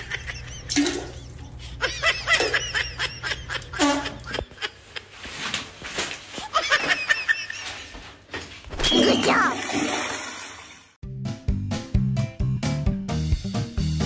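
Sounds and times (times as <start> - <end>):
person giggling: 0.0 - 5.5, 6.3 - 7.9.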